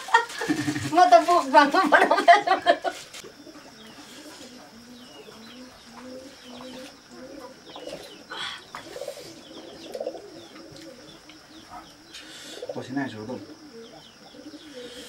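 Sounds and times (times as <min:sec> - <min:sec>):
dove cooing: 0:00.0 - 0:01.5, 0:02.8 - 0:15.0
small birds chirping: 0:00.0 - 0:15.0.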